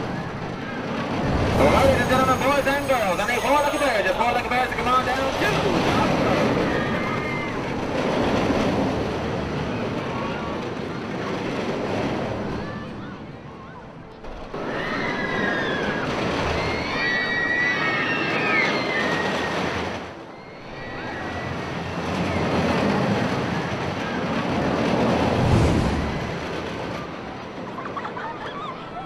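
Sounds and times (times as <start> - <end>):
ride machinery rumbling: 0.0 - 17.0
high gliding squeals: 1.2 - 7.6.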